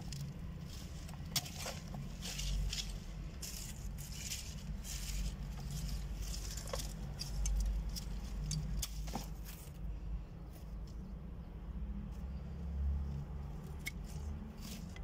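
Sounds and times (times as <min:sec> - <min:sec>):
herb leaves rustling and crackling: 0:00.0 - 0:09.8.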